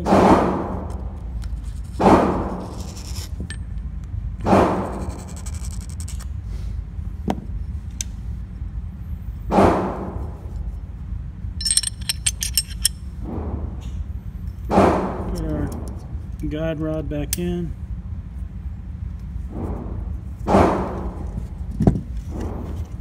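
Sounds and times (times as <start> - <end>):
steady low hum: 0.0 - 23.0
metallic clicks of pistol parts: 11.6 - 13.0.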